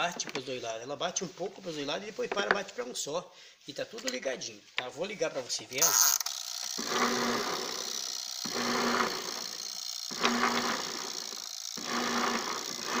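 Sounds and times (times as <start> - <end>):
washing machine motor rattling hum: 11.8 - 13.0.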